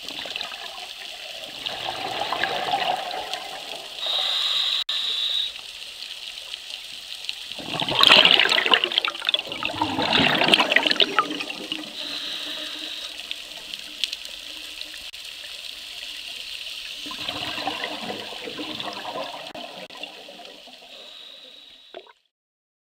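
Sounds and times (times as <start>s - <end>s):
underwater exhaled bubbles gurgling: 0.0s - 4.6s, 7.4s - 15.1s, 16.9s - 22.1s
steady high hiss: 4.0s - 7.5s, 11.9s - 17.0s.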